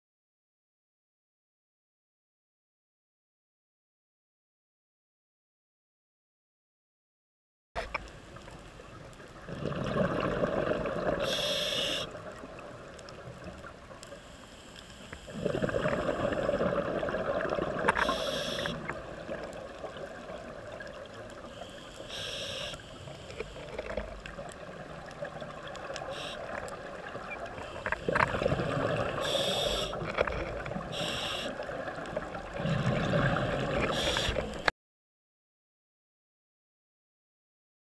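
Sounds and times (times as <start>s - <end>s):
gurgling exhaled bubbles: 9.4s - 12.9s, 15.3s - 21.3s, 23.6s - 34.7s
regulator inhalation hiss: 11.2s - 12.2s, 18.0s - 18.9s, 21.4s - 23.7s, 26.0s - 26.7s, 29.1s - 30.0s, 30.9s - 31.7s, 33.6s - 34.7s.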